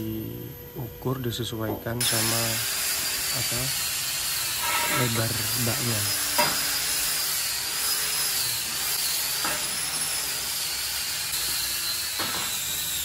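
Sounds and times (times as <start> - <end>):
high-pitched whine: 0.0 - 13.0
steel bar clanking on concrete: 4.6 - 5.2.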